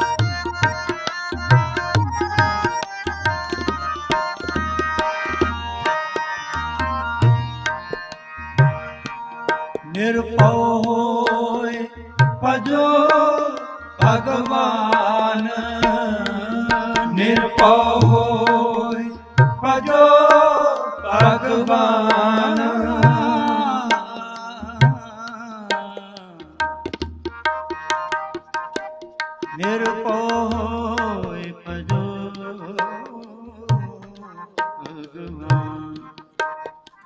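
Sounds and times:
harmonium melody: 0.0 - 37.0.

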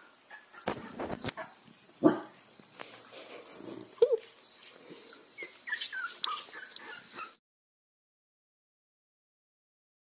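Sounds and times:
puppies whimpering: 5.0 - 7.4
high puppy squeaks: 5.4 - 7.4
puppy squealing: 5.4 - 7.4.

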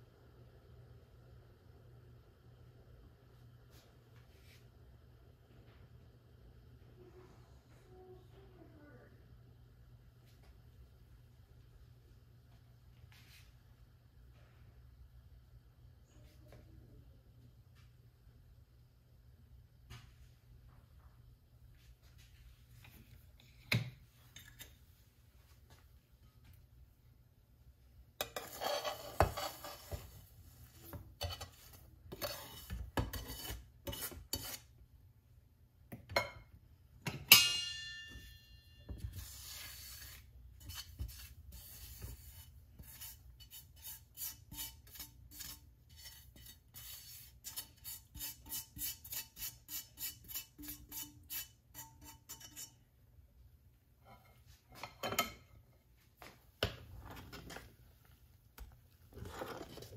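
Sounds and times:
spoon stirring in a pot: 22.8 - 25.0, 28.1 - 34.8, 37.3 - 53.0, 56.6 - 59.9
metal spoon scraping a pan: 28.2 - 34.7, 37.3 - 52.9, 59.2 - 59.9
metal clang: 37.1 - 39.0.

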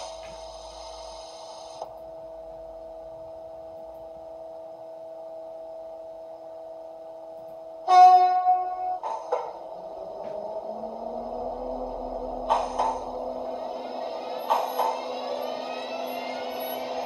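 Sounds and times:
hiss: 0.0 - 1.9
model locomotive electrical hum: 0.0 - 17.0.

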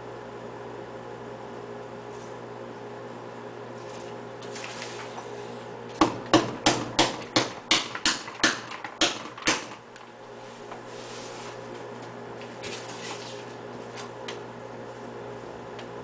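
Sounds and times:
steady low hum: 0.0 - 16.0
sharp knocks: 6.0 - 9.8.

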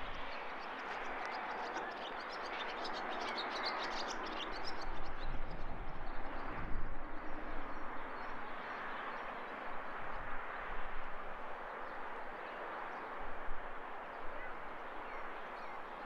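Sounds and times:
wind buffeting the microphone: 4.6 - 8.6.

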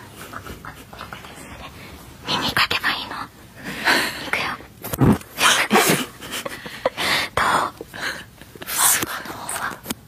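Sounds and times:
close breathy whispering: 0.0 - 4.7, 6.9 - 9.9.

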